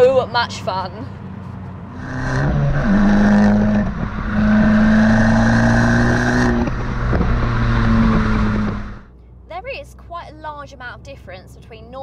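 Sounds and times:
car engine accelerating hard: 1.9s - 9.1s.

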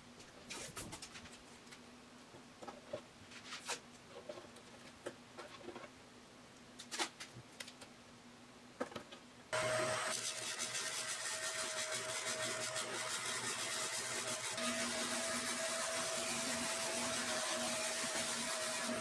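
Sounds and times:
spindle sander running: 9.6s - 19.0s.

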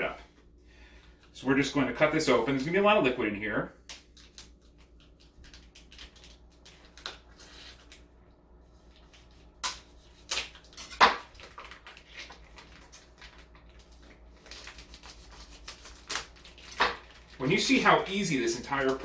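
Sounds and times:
plastic packaging crinkling: 10.2s - 19.0s.

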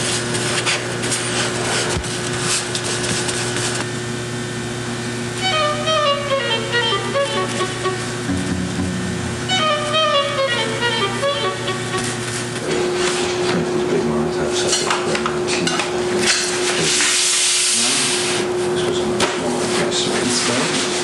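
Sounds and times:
steady hum: 3.1s - 13.9s.

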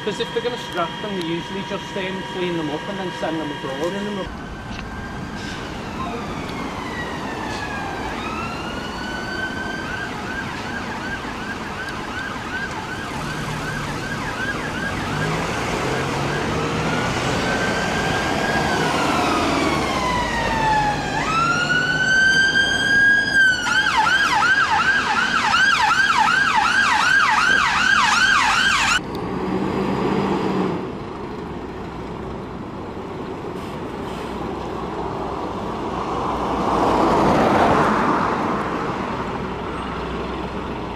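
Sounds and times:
ambulance siren wailing and yelping: 0.0s - 29.0s
traffic noise: 0.0s - 40.9s.

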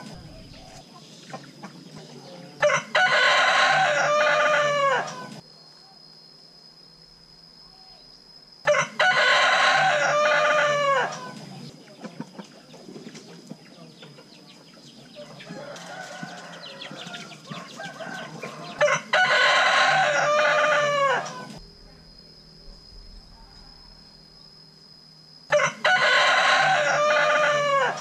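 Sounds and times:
rooster crowing: 2.2s - 5.4s, 8.6s - 11.4s, 15.2s - 21.6s, 25.5s - 28.0s.

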